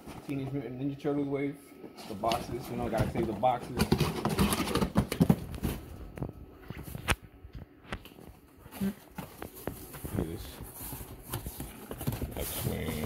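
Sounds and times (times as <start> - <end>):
cardboard boxes knocking and rustling: 2.3 - 6.0, 9.0 - 13.0.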